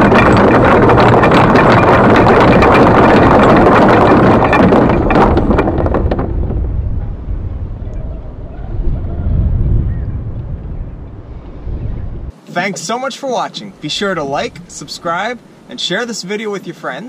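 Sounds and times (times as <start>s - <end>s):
anchor windlass hauling chain: 0.0s - 8.4s, 12.3s - 17.0s
wind noise on microphone: 0.0s - 12.4s.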